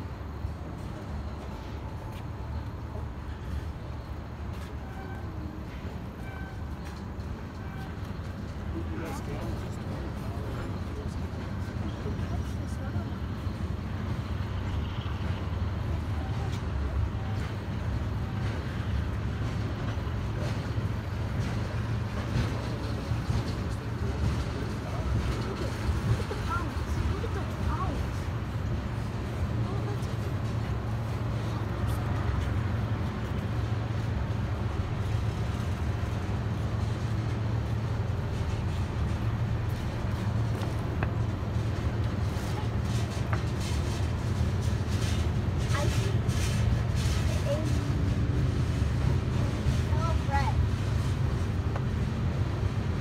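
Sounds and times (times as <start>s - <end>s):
freight train wheels rumbling: 0.0s - 53.0s
faint wheel squeal: 4.5s - 8.2s.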